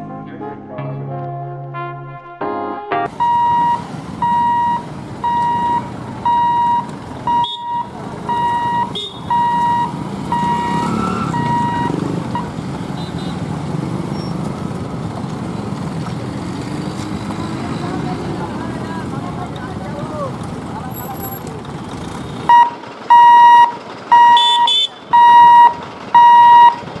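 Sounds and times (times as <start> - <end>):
road traffic engines: 3.1 - 27.0
level-crossing buzzer beeping: 3.2 - 13.3, 22.5 - 26.8.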